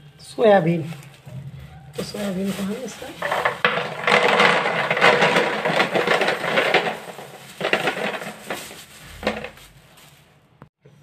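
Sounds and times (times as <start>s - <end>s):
plastic bag crinkling: 1.9s - 10.4s
dry chunks rattling into a jar: 2.0s - 9.7s.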